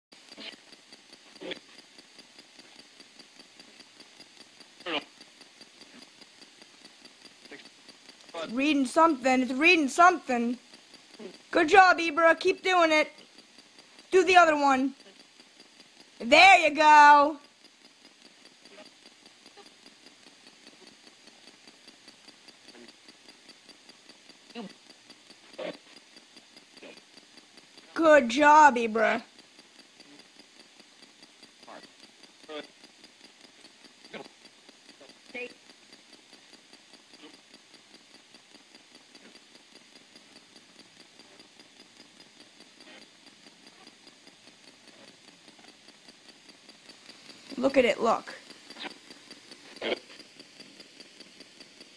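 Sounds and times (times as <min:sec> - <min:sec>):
low static: 0:00.1 - 0:51.9
rapid even clicking: 0:00.1 - 0:51.9
scraps of radio broadcast: 0:14.2 - 0:14.9, 0:16.2 - 0:17.4.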